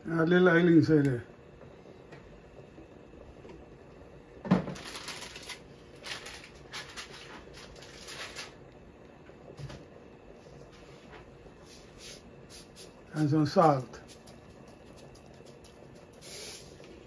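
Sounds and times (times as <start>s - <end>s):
rustling and scraping: 4.7s - 8.6s.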